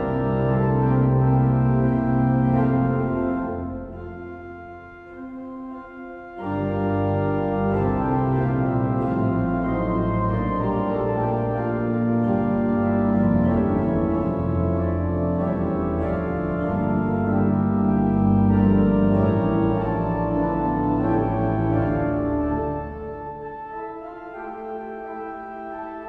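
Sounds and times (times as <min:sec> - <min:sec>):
pipe organ playing chords: 0:00.0 - 0:26.0.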